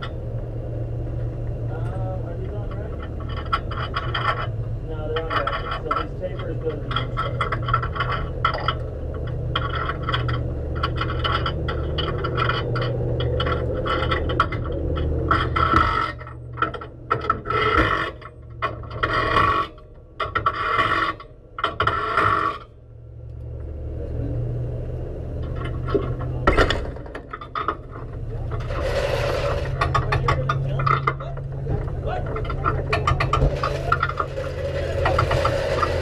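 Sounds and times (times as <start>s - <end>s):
race car engine idling: 25.4s - 36.0s.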